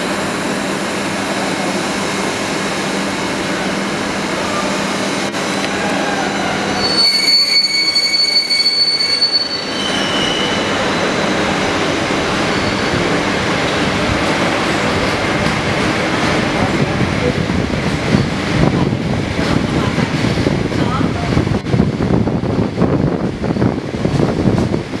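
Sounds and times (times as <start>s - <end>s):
train rolling rumble: 0.0s - 25.0s
high-pitched wheel squeal: 6.4s - 11.5s, 12.4s - 13.0s.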